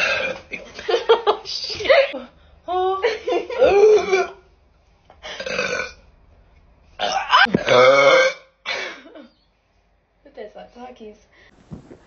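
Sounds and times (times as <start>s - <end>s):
young woman burping: 0.0s - 0.4s, 3.6s - 4.4s, 5.3s - 6.0s, 7.0s - 9.0s.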